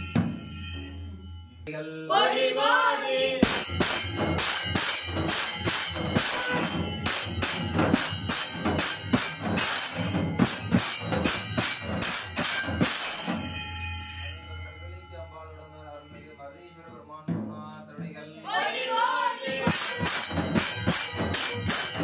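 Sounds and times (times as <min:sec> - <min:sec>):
brass hand cymbals clashing: 0:00.0 - 0:01.5, 0:03.4 - 0:14.9, 0:19.6 - 0:22.0
stick-beaten barrel drum: 0:03.4 - 0:13.7, 0:19.5 - 0:22.0.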